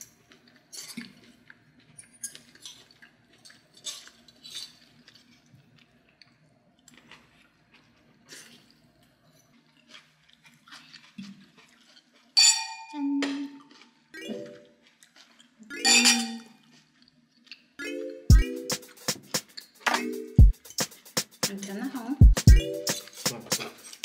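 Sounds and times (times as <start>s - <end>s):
ringing clink: 12.4s - 13.0s.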